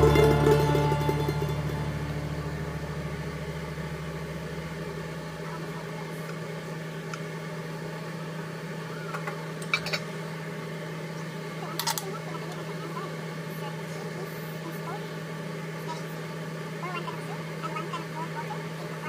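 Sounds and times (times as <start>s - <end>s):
background music: 0.0s - 5.2s
mechanical hum: 0.0s - 19.0s.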